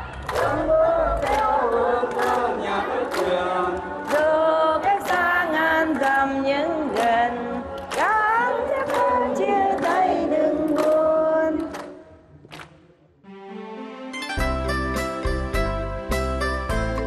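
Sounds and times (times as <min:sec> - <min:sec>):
group singing: 0:00.0 - 0:12.0
instrumental backing: 0:13.2 - 0:17.0.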